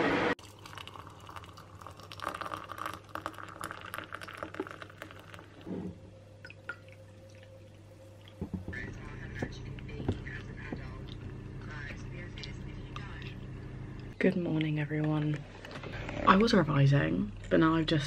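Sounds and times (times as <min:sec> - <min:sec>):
hot water pouring into a mug: 0:00.4 - 0:05.7, 0:06.5 - 0:08.4.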